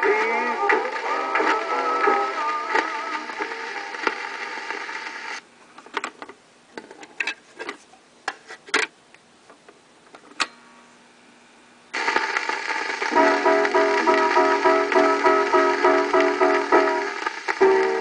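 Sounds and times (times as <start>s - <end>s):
r and b record playing: 0.0s - 5.5s, 11.9s - 18.0s
faint steady hum: 0.0s - 18.0s.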